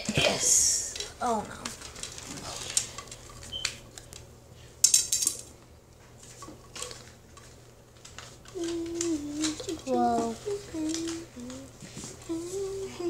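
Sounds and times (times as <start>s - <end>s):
plastic parts clicking on tile floor: 4.8s - 5.5s, 6.4s - 11.6s.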